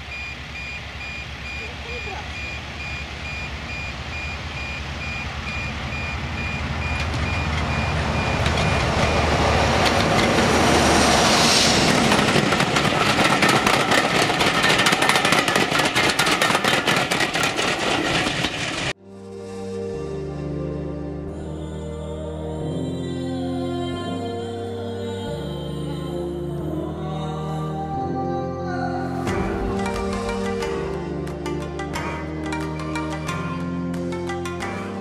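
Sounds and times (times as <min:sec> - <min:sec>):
repeating high beep: 0:00.0 - 0:09.3
diesel locomotive engine drone: 0:00.0 - 0:23.5, 0:28.7 - 0:35.0
train wheels clattering on track: 0:06.8 - 0:19.0.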